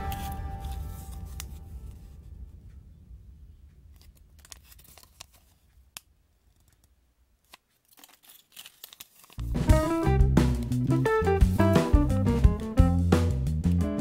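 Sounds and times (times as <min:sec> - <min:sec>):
paper leaflet crinkling: 0:00.0 - 0:02.0, 0:04.0 - 0:09.7
background music: 0:00.0 - 0:02.2, 0:09.4 - 0:14.0.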